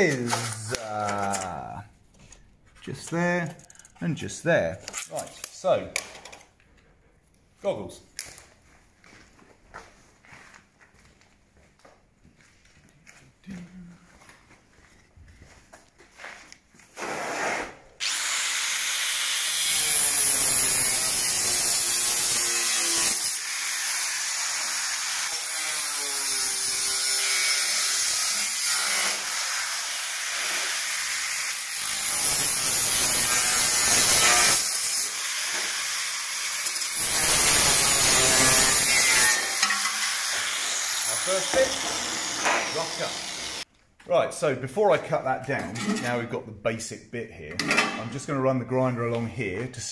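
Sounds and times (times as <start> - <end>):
angle grinder cutting steel: 18.0 - 43.6.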